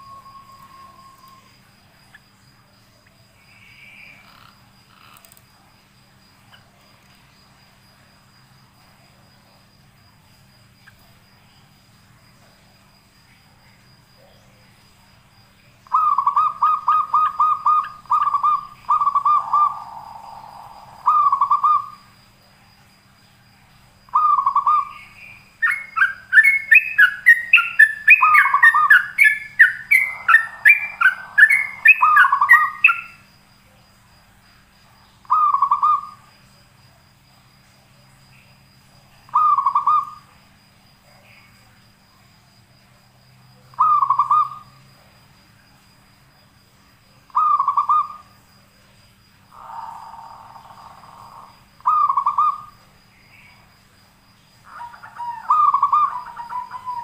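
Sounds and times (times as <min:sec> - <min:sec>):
bird singing whistled notes: 0:00.0 - 0:01.6, 0:15.9 - 0:22.0, 0:24.2 - 0:33.2, 0:54.8 - 0:57.0
raspy bird notes: 0:25.6 - 0:33.2.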